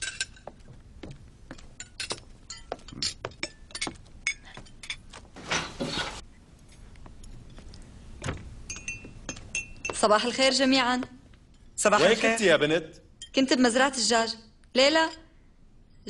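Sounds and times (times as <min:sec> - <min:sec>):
cutlery clinking on plates: 0:00.0 - 0:00.6, 0:01.6 - 0:06.2.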